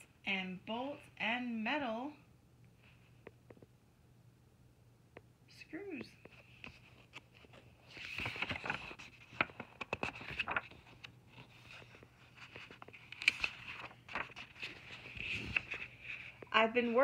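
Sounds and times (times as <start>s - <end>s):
book pages rustling and turning: 6.2s - 16.6s.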